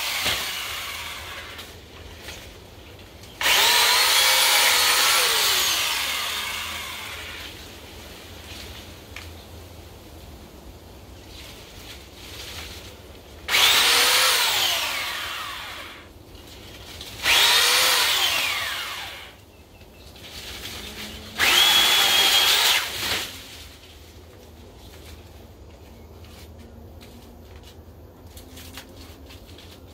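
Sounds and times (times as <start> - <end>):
electric pole trimmer motor whine: 0.0 - 1.7, 3.4 - 7.6, 13.5 - 16.1, 17.2 - 19.4, 21.0 - 23.3.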